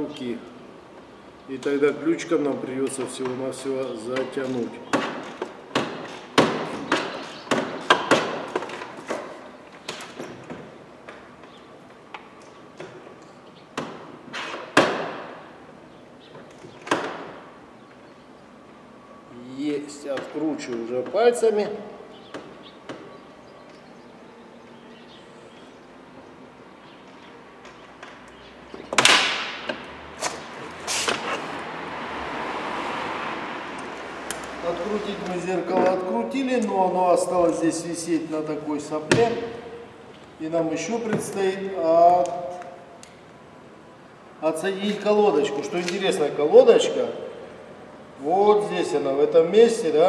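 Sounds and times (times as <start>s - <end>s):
knocks of hard car parts: 4.9s - 9.3s, 13.8s - 15.4s, 16.7s - 17.4s, 28.7s - 29.9s, 39.1s - 39.6s.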